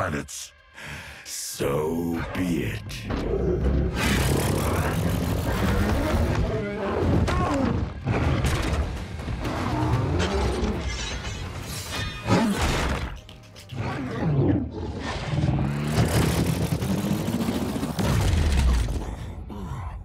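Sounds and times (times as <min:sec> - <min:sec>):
dramatic music: 0:00.0 - 0:16.9
robot beasts roaring and growling: 0:01.5 - 0:08.8, 0:13.7 - 0:20.0.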